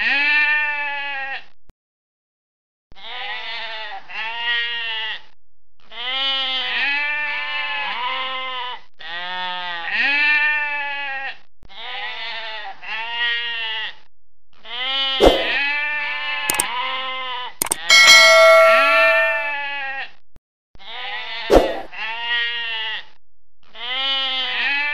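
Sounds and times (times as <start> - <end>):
sheep bleating: 0.0 - 1.4, 3.0 - 5.2, 5.9 - 8.4, 9.0 - 13.9, 23.8 - 24.9
sharp clicks: 17.6 - 19.4
bright ringing chime: 17.6 - 19.6.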